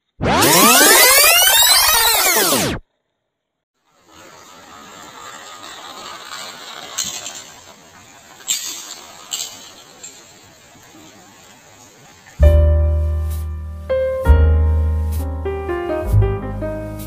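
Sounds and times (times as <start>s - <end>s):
steady hiss: 3.8s - 17.0s
toy car clinking on concrete: 4.0s - 11.2s.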